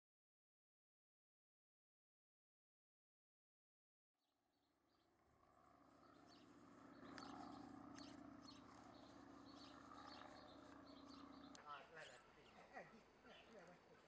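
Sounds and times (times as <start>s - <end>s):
bird chirps: 6.0s - 12.6s.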